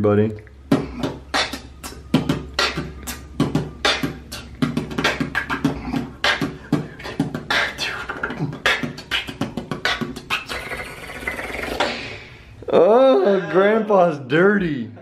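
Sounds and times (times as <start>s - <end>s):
man beatboxing: 0.7s - 12.1s.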